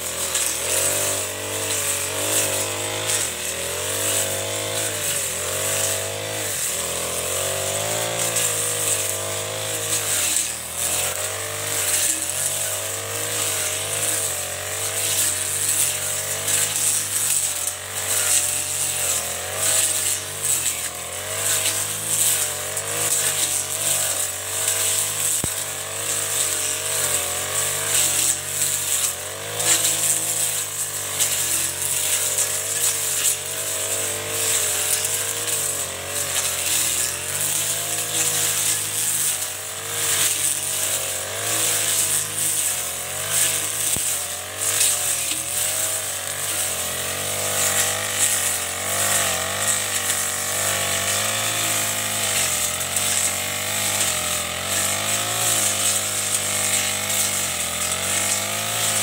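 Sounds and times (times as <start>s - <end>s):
blade cutting grass: 0.0s - 59.0s
brush cutter engine running: 0.0s - 59.0s.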